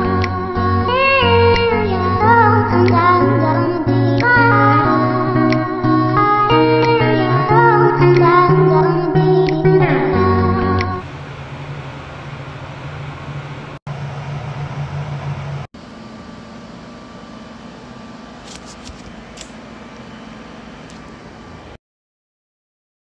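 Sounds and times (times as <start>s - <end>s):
low electric hum: 9.9s - 21.8s.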